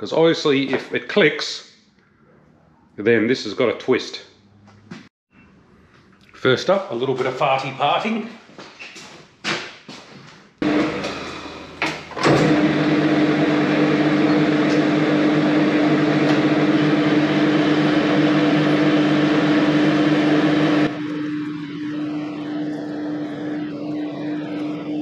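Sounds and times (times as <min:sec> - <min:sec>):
metal lathe running: 0:10.6 - 0:25.0.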